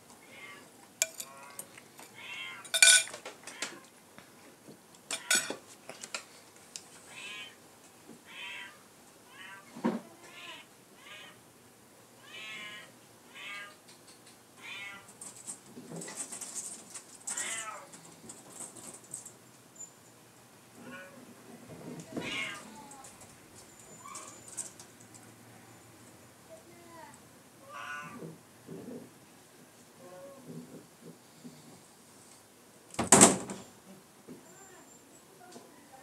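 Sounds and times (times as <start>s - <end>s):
cat meowing: 0.2s - 0.7s, 2.2s - 2.7s, 7.1s - 7.6s, 8.3s - 11.4s, 12.2s - 13.8s, 14.6s - 15.1s, 17.3s - 17.9s, 20.8s - 21.2s, 22.2s - 23.0s, 27.6s - 28.2s
cutlery clinking on a plate: 1.0s - 1.4s, 2.6s - 3.2s, 5.1s - 6.2s.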